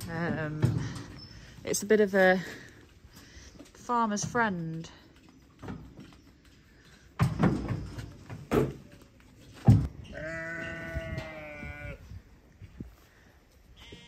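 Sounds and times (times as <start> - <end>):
sheep bleating: 10.1 - 12.0, 13.8 - 14.0.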